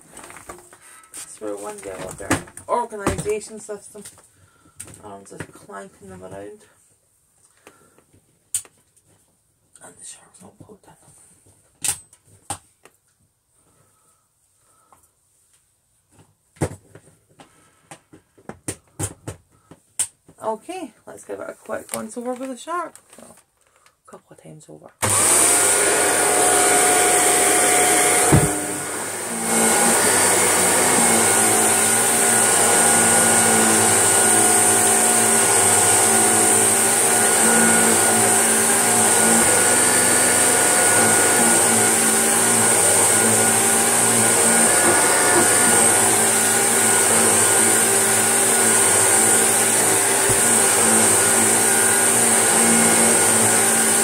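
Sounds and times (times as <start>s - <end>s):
vacuum cleaner whirring: 0.0s - 4.0s, 25.0s - 54.0s.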